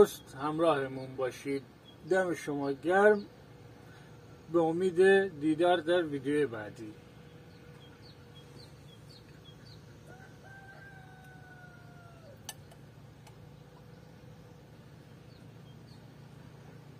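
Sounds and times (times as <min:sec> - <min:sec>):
small bird chirps: 0:07.2 - 0:16.7
faint rooster crowing: 0:09.9 - 0:12.7.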